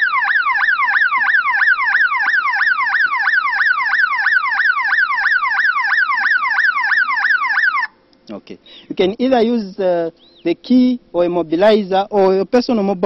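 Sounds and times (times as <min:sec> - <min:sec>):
car alarm siren sweeping: 0:00.0 - 0:08.0.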